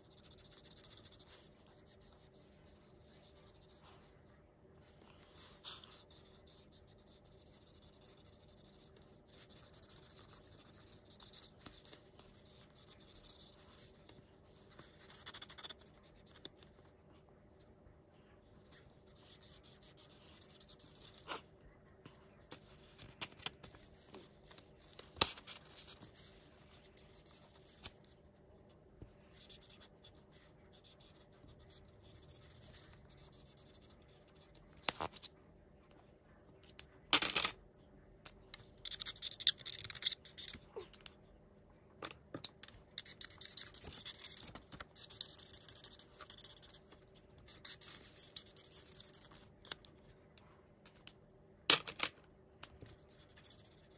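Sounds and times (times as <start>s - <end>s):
marker rubbing on paper: 0.0s - 4.1s, 5.0s - 16.4s, 18.6s - 21.5s, 43.0s - 49.4s, 53.2s - 53.9s.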